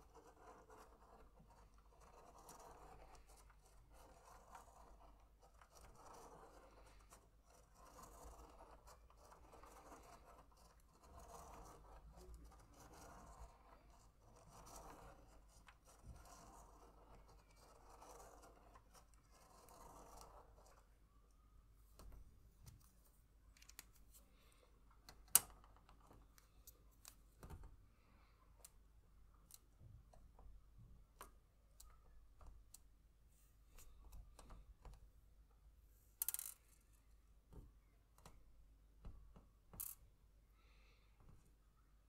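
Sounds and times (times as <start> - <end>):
pen scratching on paper: 0.0 - 20.9.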